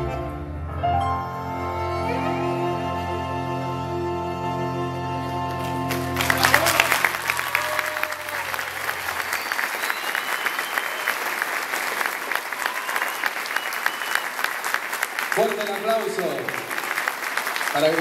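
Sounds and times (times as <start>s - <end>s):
audience applause: 5.1s - 18.0s.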